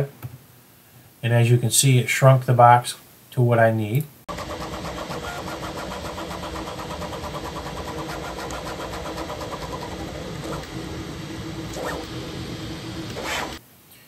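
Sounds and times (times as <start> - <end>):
motor whines: 4.3 - 13.6
printer fan and motor hum: 4.3 - 13.6
stepper motors ticking: 4.3 - 13.6.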